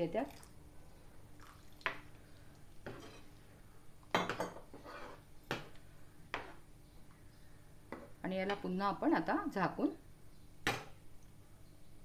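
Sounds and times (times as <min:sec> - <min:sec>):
metal spoon scraping a pan: 0:02.8 - 0:03.3, 0:04.7 - 0:05.3.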